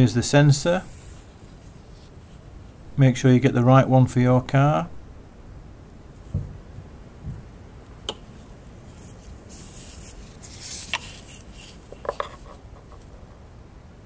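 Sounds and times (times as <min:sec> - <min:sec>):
glove rubbing on plastic: 0:08.3 - 0:13.3.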